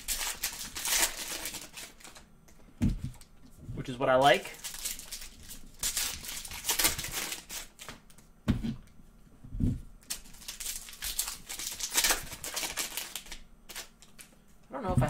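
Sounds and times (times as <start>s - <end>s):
foil wrappers crinkling and tearing: 0.0s - 2.3s, 4.2s - 8.2s, 10.0s - 14.4s.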